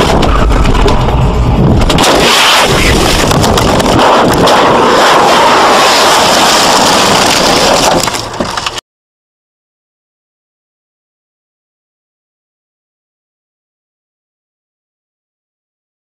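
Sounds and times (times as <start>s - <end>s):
car crashing and tumbling: 0.0s - 8.8s
loud distorted banging: 0.0s - 8.8s
rushing noise: 0.0s - 8.8s.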